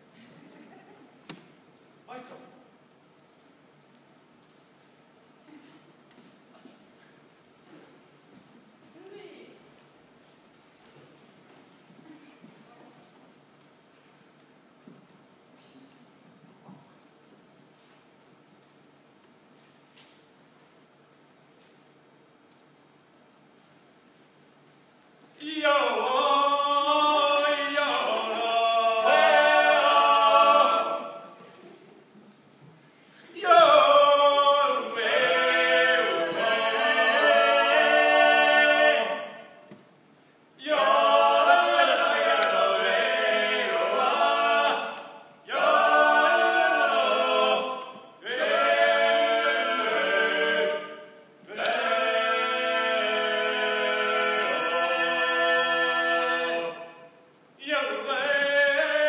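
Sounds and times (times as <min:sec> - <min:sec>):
people singing unaccompanied: 0:25.4 - 0:31.5, 0:33.4 - 0:39.8, 0:40.6 - 0:59.0.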